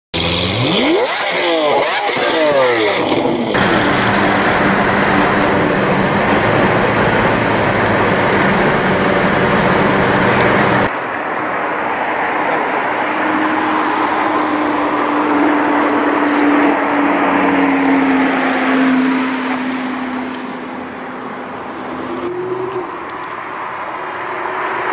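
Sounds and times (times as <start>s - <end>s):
car engine revving: 0.2s - 10.9s
car engine running hard: 0.2s - 24.9s
car driving by: 0.7s - 10.9s.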